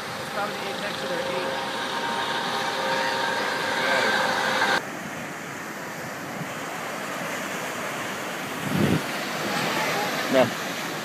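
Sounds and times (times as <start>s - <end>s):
helicopter engine whine: 0.0s - 4.8s
wind on microphone: 0.0s - 10.8s
surf: 0.0s - 11.0s.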